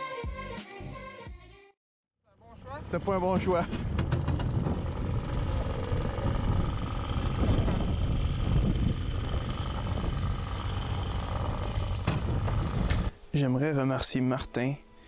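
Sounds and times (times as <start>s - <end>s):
outboard motor running: 2.6s - 13.1s.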